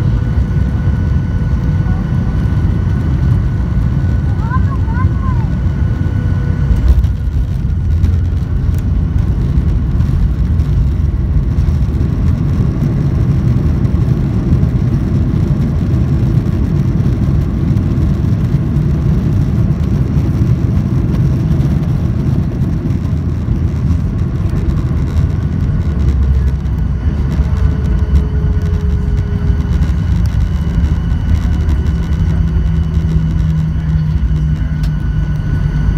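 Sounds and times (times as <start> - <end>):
low even hum: 0.0 - 35.9
low rumble of wheels and engines: 0.0 - 35.9
faint whine sliding down: 24.6 - 35.9.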